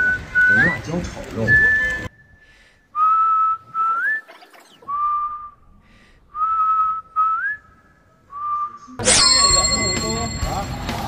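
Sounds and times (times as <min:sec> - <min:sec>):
person whistling a tune: 0:06.4 - 0:09.0.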